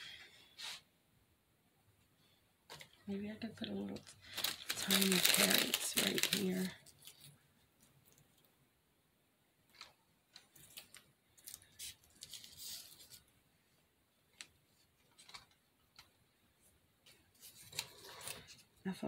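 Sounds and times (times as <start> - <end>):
light clicks and rustles: 14.3 - 16.2.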